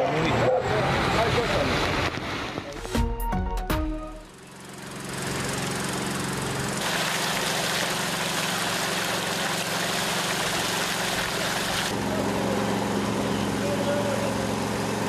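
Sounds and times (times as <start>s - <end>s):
pump engine running: 3.8s - 15.0s
water jet rushing from hose: 4.8s - 13.0s.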